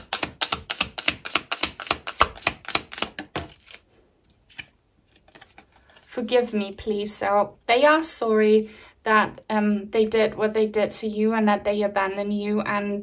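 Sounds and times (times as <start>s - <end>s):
cards being shuffled: 0.0s - 6.3s.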